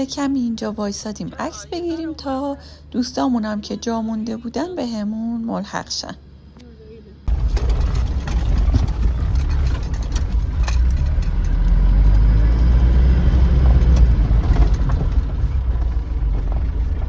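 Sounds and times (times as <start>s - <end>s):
truck engine and road rumble: 0.0s - 17.0s
cab rattles and knocks: 7.3s - 12.9s, 13.5s - 17.0s.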